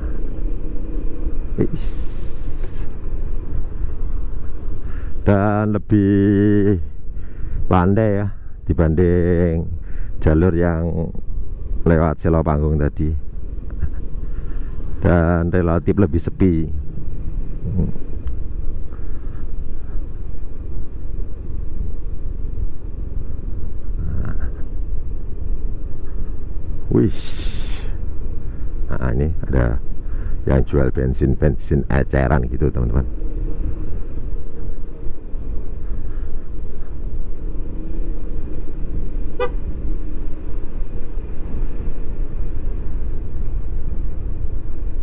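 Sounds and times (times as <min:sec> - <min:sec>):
low wind rumble: 0:00.0 - 0:45.0
wind noise on microphone: 0:16.3 - 0:30.5.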